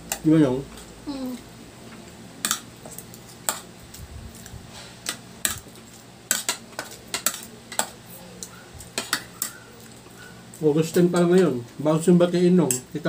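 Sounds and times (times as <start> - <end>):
cutlery clinking on plates: 6.3 - 8.0.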